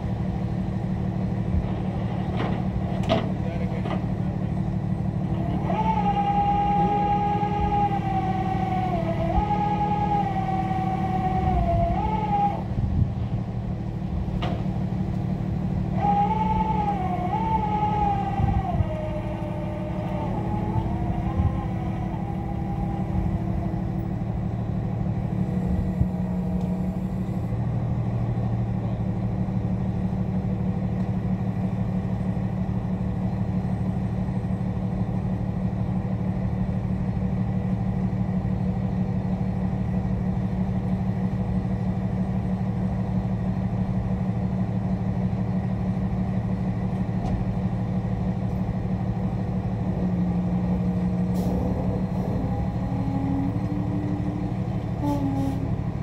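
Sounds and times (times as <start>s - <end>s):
truck engine running: 0.0s - 56.0s
high whine: 15.2s - 27.6s.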